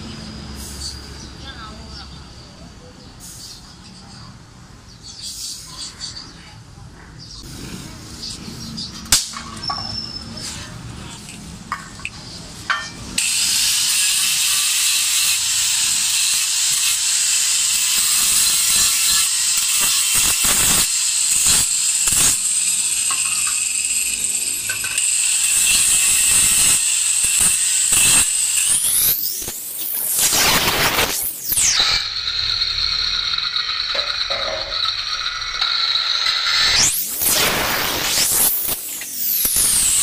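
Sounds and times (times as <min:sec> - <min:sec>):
angle grinder grinding metal: 0:12.7 - 0:40.0.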